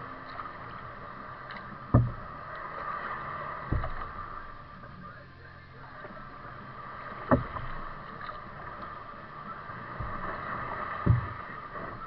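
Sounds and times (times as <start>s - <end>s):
paddle strokes thumping: 0.0s - 12.0s.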